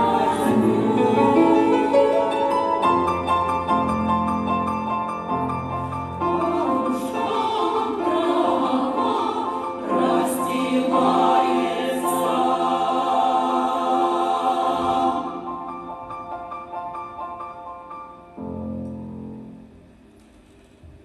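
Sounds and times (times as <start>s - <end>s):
women's choir singing: 0.0s - 2.9s, 6.1s - 16.2s
piano accompaniment: 0.0s - 20.1s.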